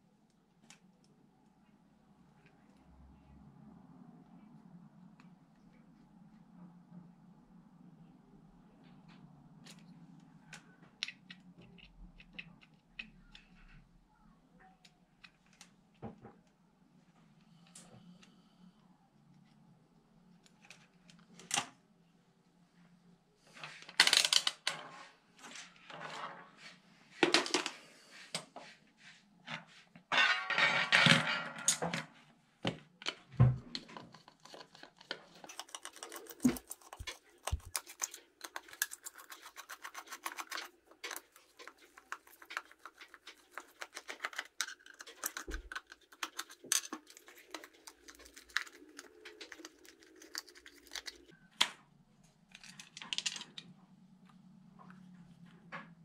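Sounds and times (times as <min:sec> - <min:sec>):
small parts clicking and knocking: 0:10.5 - 0:13.8, 0:33.0 - 0:51.4.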